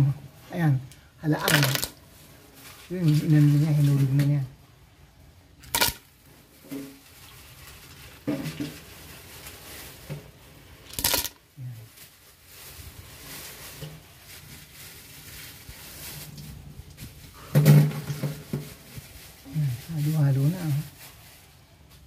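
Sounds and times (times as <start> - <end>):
spatula shuffling in pot: 11.6 - 22.0.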